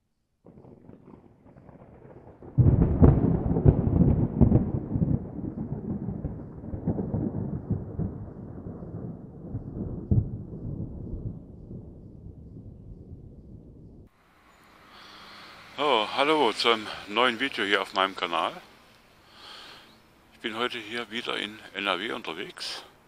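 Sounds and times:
thunder rumbling and cracking: 0.4 - 14.1.

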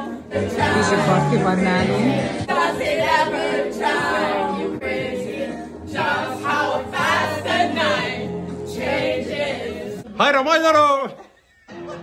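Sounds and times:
people singing karaoke together: 0.0 - 10.1.

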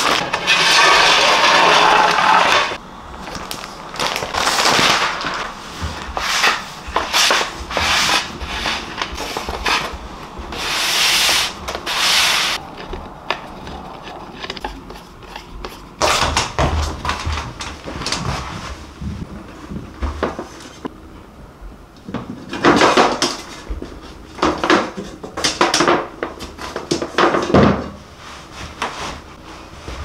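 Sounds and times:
paper rubbing against board: 6.2 - 9.9.

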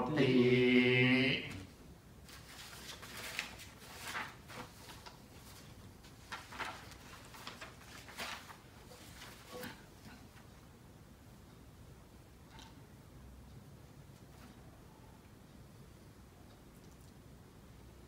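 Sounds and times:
paper sheets rustling: 2.2 - 10.5.

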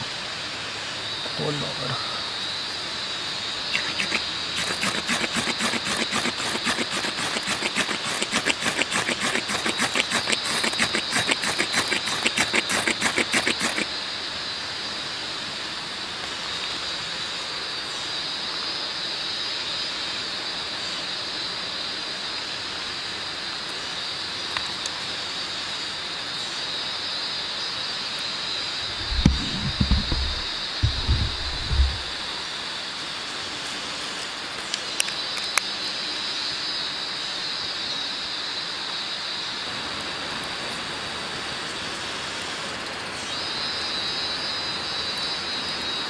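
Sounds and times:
ferro rod scraped with striker: 3.7 - 13.9, 28.9 - 32.1.

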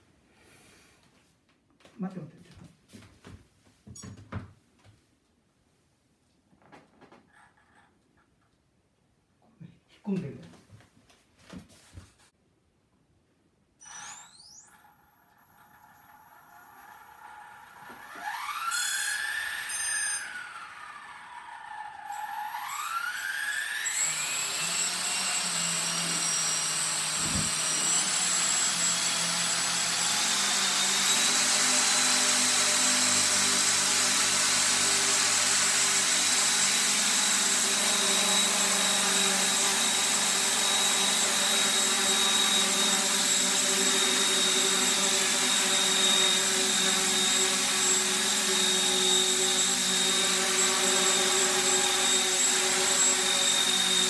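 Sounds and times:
electric motor whine: 20.4 - 54.0.

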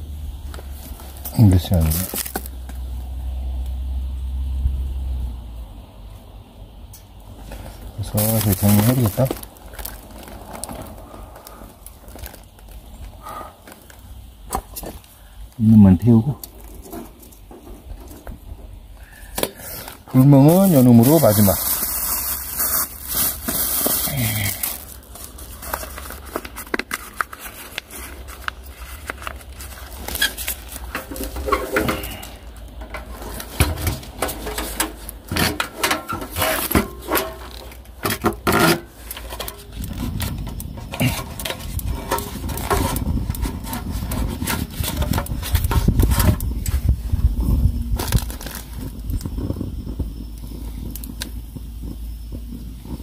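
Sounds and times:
pine cones burning in brazier: 0.0 - 53.0
clicks and rustles of handling: 0.5 - 2.8, 6.9 - 18.5, 19.3 - 47.4.

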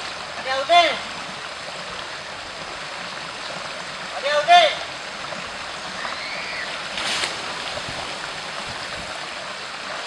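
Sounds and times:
stream running over rocks: 0.0 - 10.0
water splash: 5.5 - 10.0.

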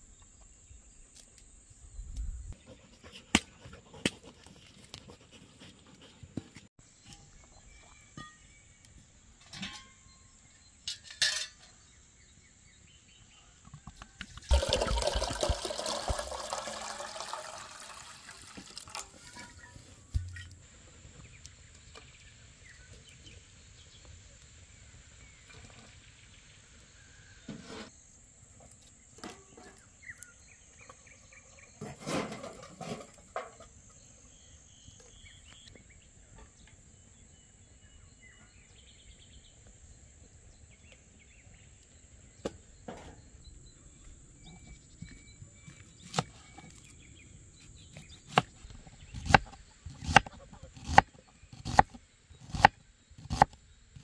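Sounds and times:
bird chirps: 33.9 - 49.3
knife chopping onion on wooden board: 49.2 - 53.5.

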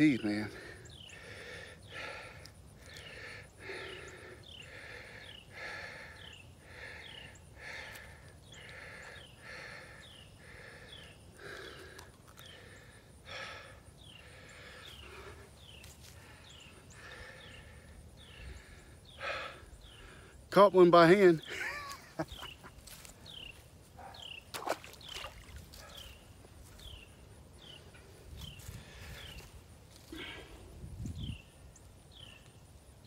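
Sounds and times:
man breathing hard: 0.5 - 20.5, 28.4 - 31.3.

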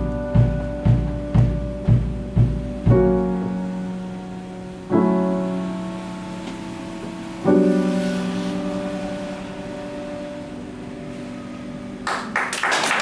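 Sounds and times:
jazz chord ringing: 0.0 - 12.4
audience applause: 12.0 - 13.0.

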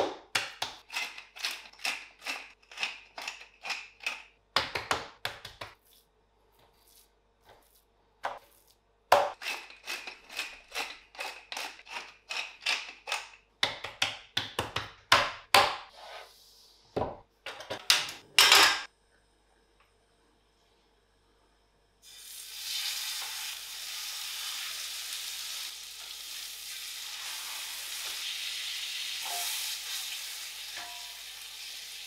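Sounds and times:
pepper mill grinding: 0.4 - 4.3, 9.4 - 13.4.

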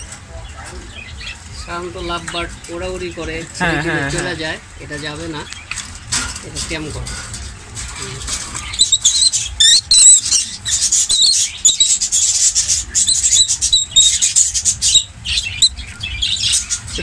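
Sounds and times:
lovebirds chirping shrilly: 8.6 - 17.0.

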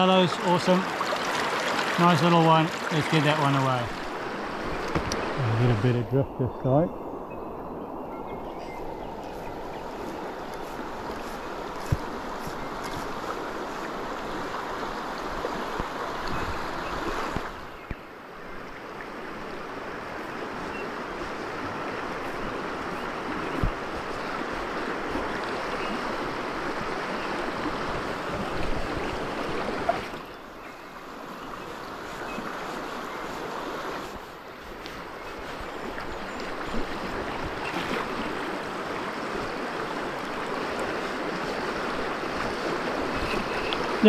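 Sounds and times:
river rapids rushing: 0.0 - 5.8.

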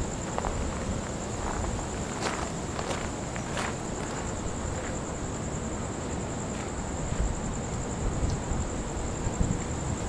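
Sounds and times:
wind buffeting microphone: 6.5 - 10.0.

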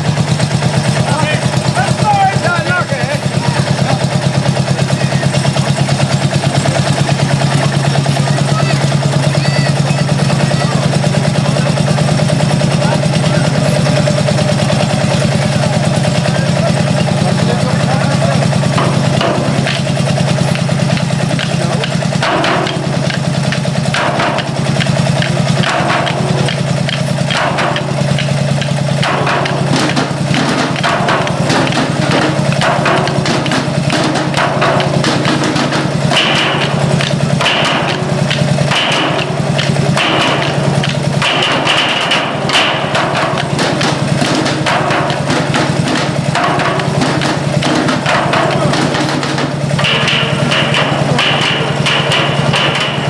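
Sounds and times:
engine running steadily: 0.0 - 53.0
drumsticks hitting steel barrels: 18.2 - 53.0.

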